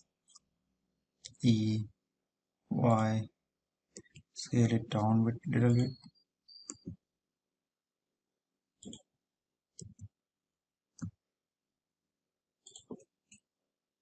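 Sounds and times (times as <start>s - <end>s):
keyboard and mouse clicks: 5.8s - 7.0s, 8.8s - 9.1s, 9.8s - 10.1s, 10.9s - 11.2s, 12.6s - 13.5s.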